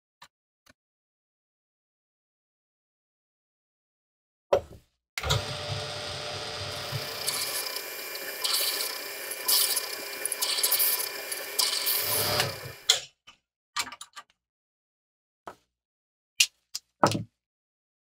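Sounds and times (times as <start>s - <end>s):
drill press cutting steel: 5.2s - 12.9s.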